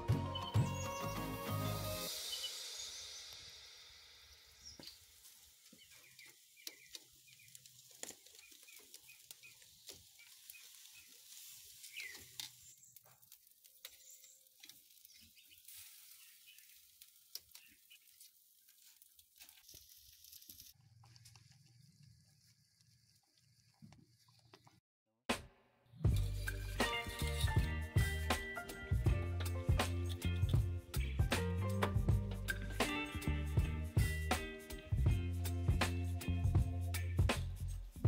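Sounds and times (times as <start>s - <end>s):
meat crackling and sizzling: 4.6s - 20.8s.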